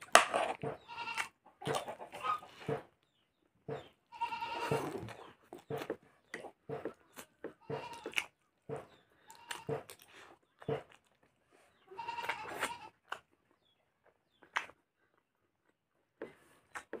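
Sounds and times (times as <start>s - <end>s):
chewing and mouth noises: 4.6s - 17.0s.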